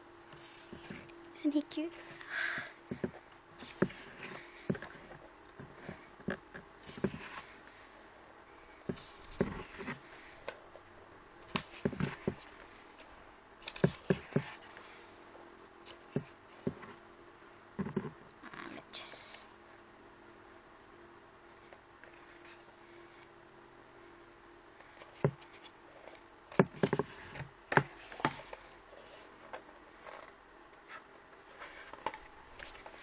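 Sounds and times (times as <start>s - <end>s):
faint steady hum: 0.0s - 33.0s
paper pages rustling: 27.1s - 33.0s.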